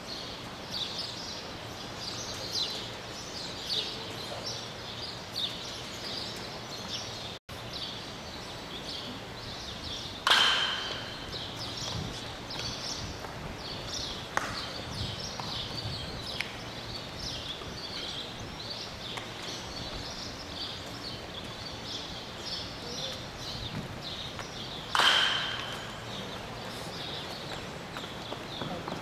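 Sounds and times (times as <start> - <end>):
birds chirping: 0.0 - 29.0
bat hitting ball: 10.2 - 11.4, 24.9 - 26.0.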